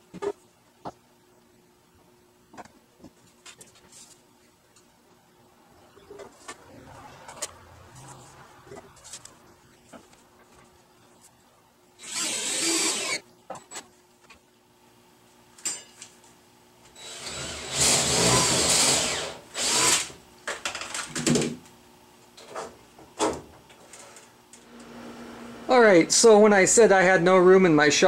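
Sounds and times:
cordless drill driving screws: 12.0 - 13.2, 17.0 - 20.2.

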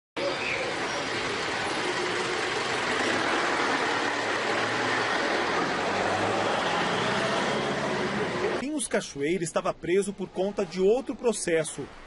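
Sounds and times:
truck engine driving off: 0.5 - 8.6.

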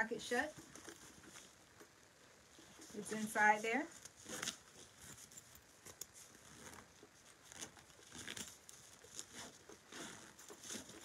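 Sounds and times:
fabric bag rustling: 2.5 - 11.0.

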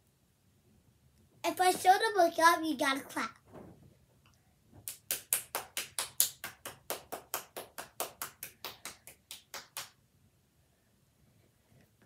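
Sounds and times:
hand clapping: 4.8 - 10.0.

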